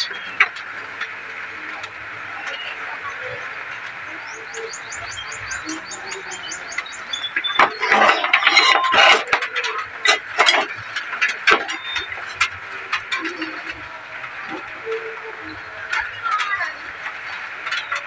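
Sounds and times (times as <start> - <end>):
sheet metal plates clattering: 7.4 - 15.2.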